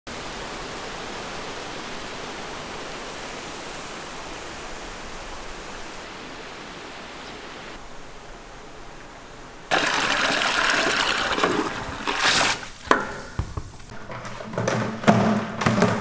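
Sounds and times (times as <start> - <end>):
aerators churning water: 0.1 - 7.8, 8.8 - 13.1.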